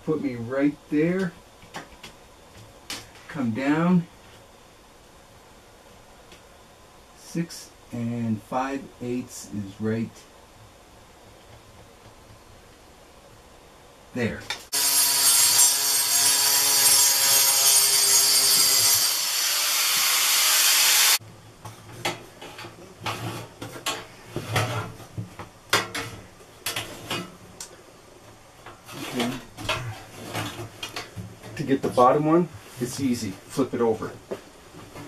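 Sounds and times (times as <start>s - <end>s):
power tool cutting: 14.7s - 21.2s
metal plate knocking and rubbing: 21.7s - 27.4s.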